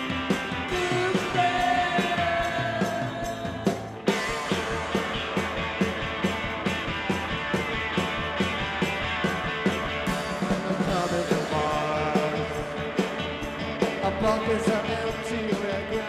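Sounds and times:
rock music: 0.0 - 16.0
steady drum beat: 0.0 - 16.0
person singing: 0.7 - 4.0, 10.7 - 12.9, 14.0 - 16.0.

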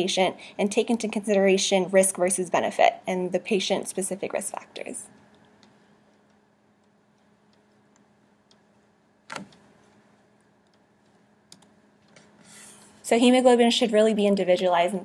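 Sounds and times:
faint clicks and ticks: 5.1 - 12.3.

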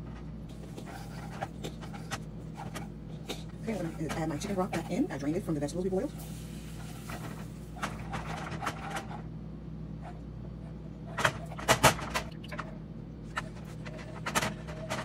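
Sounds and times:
wooden spoon scraping skillet: 3.5 - 5.5.

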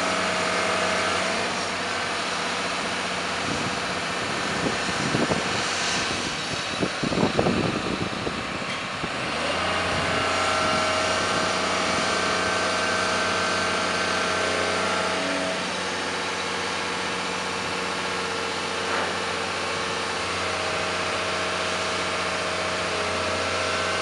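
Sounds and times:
diesel engine running: 0.0 - 24.0
high machine whine: 0.0 - 24.0.

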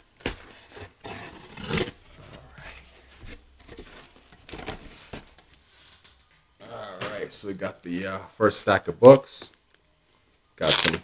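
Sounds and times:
cardboard scraping and rustling: 0.3 - 5.4.

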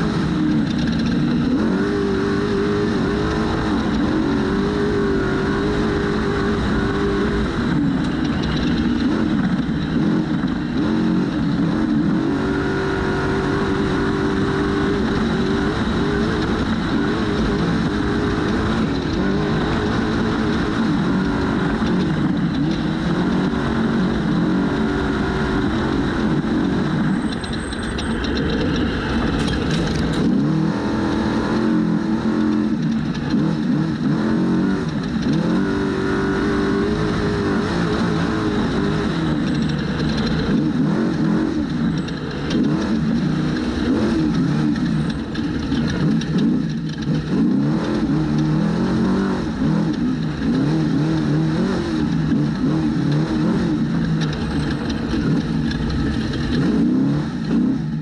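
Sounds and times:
truck engine revving: 0.0 - 58.0.

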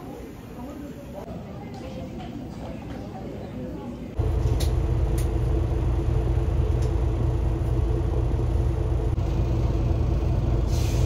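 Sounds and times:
bus engine and road rumble: 4.1 - 11.0.

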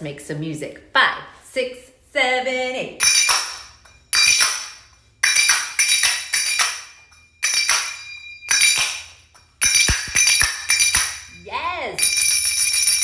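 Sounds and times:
finger cymbals striking: 3.0 - 13.0.

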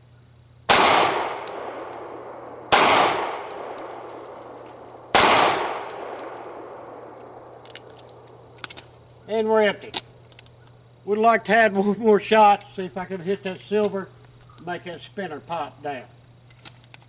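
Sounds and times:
pistol shots echoing: 0.7 - 7.6.

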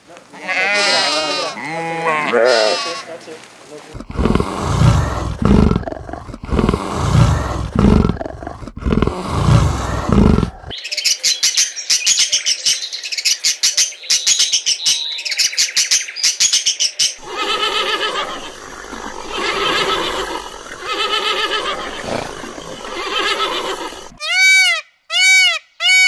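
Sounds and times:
leopard grunting: 3.9 - 10.7, 17.2 - 24.2.

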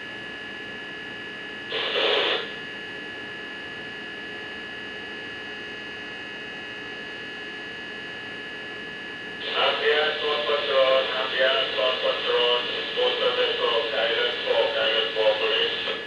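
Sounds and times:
electrical hum: 0.0 - 16.0
static burst: 1.7 - 2.5, 9.4 - 10.3.

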